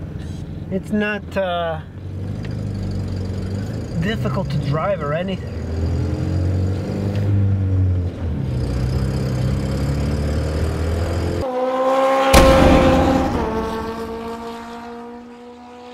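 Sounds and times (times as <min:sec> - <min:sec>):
sharp hit: 0:12.3 - 0:15.2.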